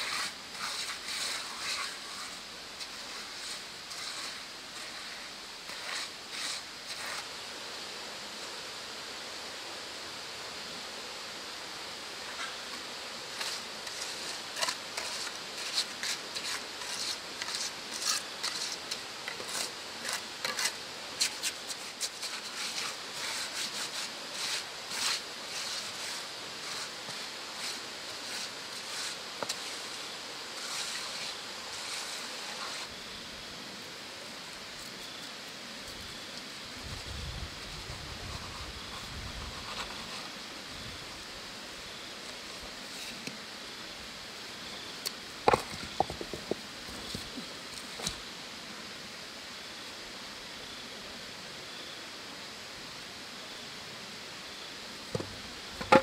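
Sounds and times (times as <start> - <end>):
trowel scraping mortar on stones: 0.0 - 7.3, 12.2 - 32.9, 45.5 - 48.2.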